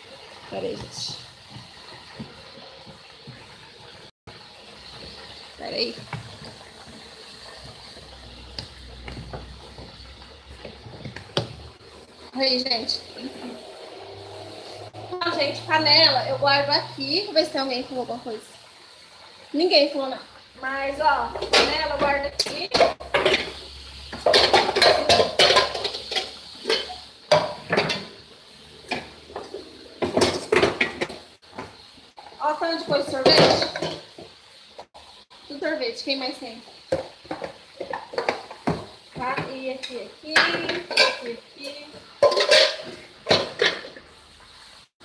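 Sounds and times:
pots and containers clinking: 4.8 - 16.3, 20.6 - 34.4, 36.8 - 44.2.

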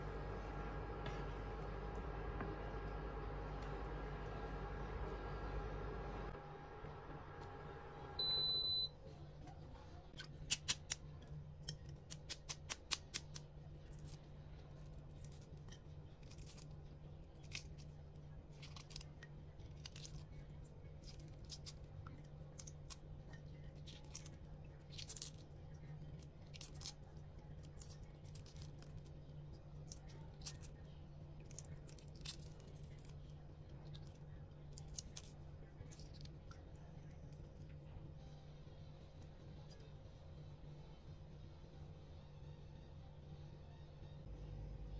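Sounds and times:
electric cooker beep: 8.0 - 9.0
egg shells cracking and peeling: 10.2 - 36.7.

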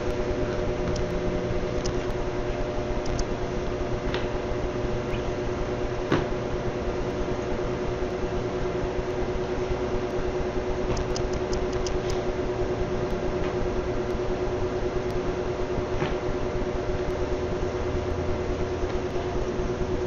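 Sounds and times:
ceiling fans whirring: 0.0 - 20.0
sharp click: 1.8 - 2.2, 3.0 - 3.3, 10.9 - 12.2.

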